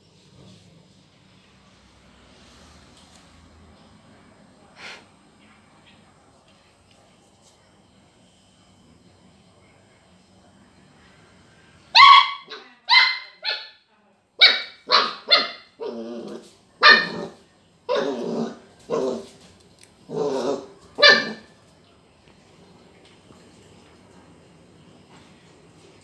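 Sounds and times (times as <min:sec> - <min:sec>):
puppy barking: 0:11.9 - 0:13.8, 0:14.4 - 0:15.9, 0:16.8 - 0:19.3, 0:20.4 - 0:21.6.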